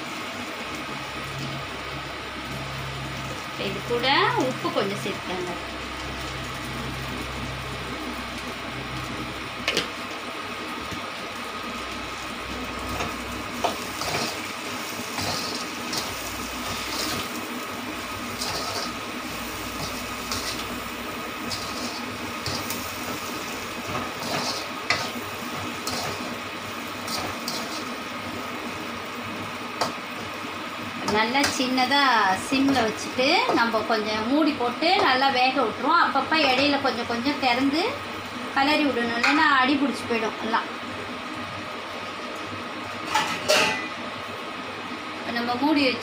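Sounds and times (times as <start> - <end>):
metal spatula scraping a wok: 15.1 - 17.3, 18.3 - 20.8, 21.4 - 26.3, 27.0 - 28.0.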